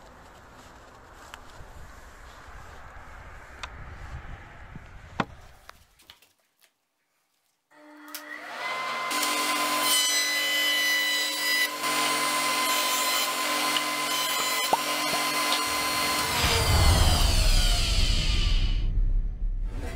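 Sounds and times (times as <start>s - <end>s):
electric jointer whining: 7.8s - 16.6s.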